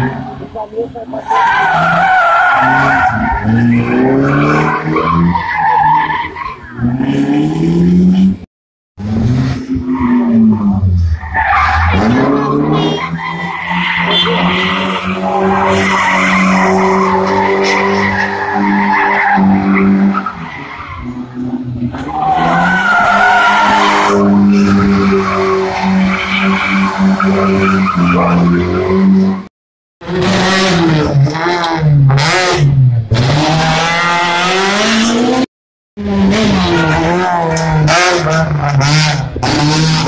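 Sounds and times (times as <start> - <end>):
tyres squealing on tarmac: 1.1 - 6.9, 11.2 - 21.2, 22.0 - 29.2
another car revving: 6.7 - 40.0
car engine at high revs: 23.6 - 40.0.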